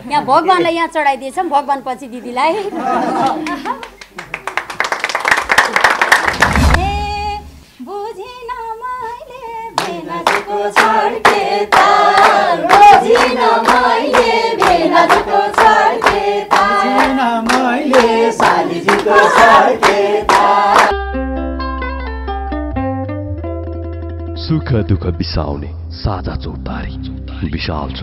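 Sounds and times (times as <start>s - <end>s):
hands clapping in time: 3.2s - 6.6s, 9.8s - 21.0s
group of people singing: 9.4s - 20.9s.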